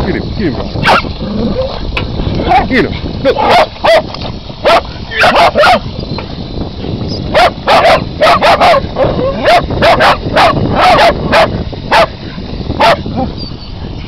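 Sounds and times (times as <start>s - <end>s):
dogs yapping: 0.8s - 1.8s, 3.4s - 5.8s, 7.3s - 12.1s, 12.8s - 13.6s.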